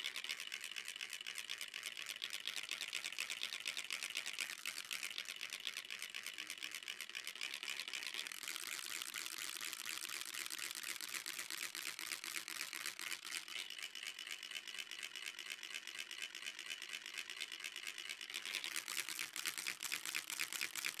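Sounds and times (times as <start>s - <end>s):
rapid crackling clicks: 0.0s - 21.0s.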